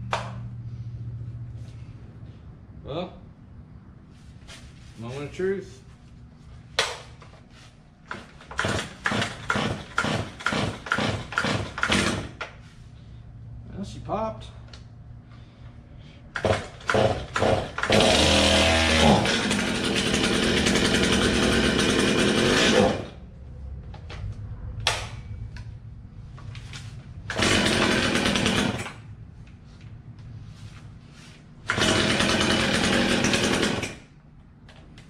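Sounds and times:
chainsaw engine running: 16.4s - 23.1s, 27.3s - 28.9s, 31.7s - 34.0s.

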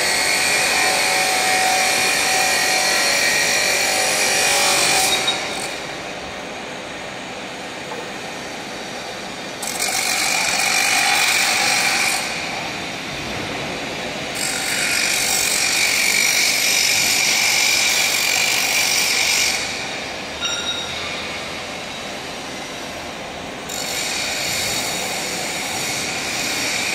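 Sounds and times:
grinder whining on steel: 0.0s - 5.9s
background machine noise: 0.0s - 26.9s.

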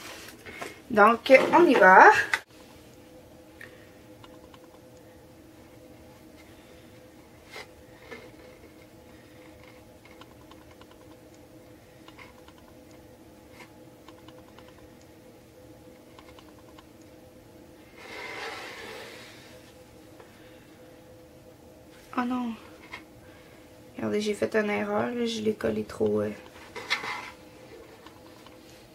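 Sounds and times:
faint steady hum: 0.0s - 28.9s
faint clicks and taps: 9.6s - 13.0s.

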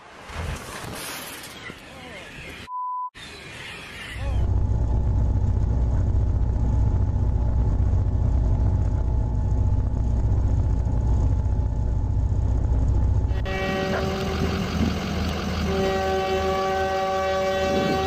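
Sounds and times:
heavy engine rumbling: 4.4s - 18.0s
train horn: 13.3s - 18.0s.

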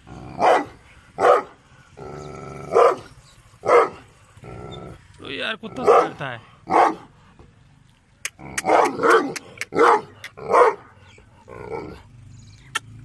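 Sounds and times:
dog barking: 0.4s - 1.6s, 2.7s - 4.0s, 5.8s - 7.1s, 8.6s - 11.0s.

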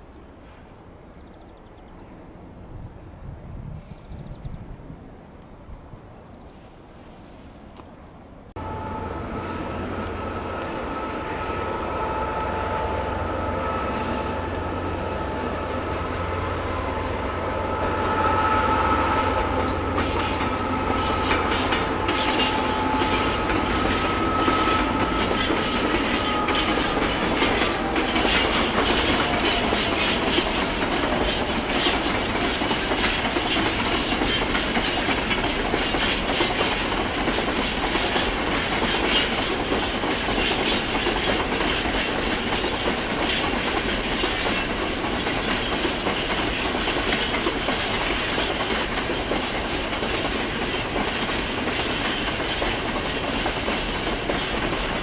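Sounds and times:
diesel locomotive engine droning: 7.0s - 55.0s
high steady whine: 8.6s - 32.3s
wheels clattering over rail joints: 19.4s - 55.0s.

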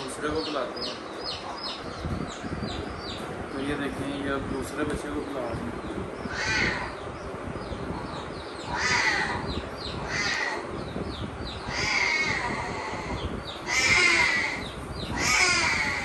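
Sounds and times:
lion cub crying: 6.2s - 7.0s, 8.0s - 10.8s, 11.5s - 16.0s.

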